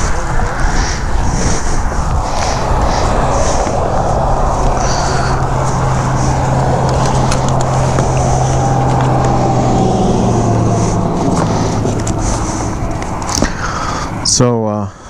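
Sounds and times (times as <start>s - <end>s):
road and wind noise: 0.0s - 15.0s
motorcycle engine running: 3.6s - 13.6s.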